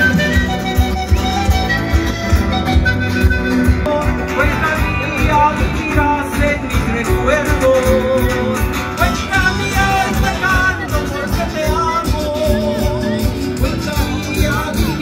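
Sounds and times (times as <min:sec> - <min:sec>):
folk band playing: 0:00.0 - 0:15.0
person singing: 0:03.8 - 0:15.0.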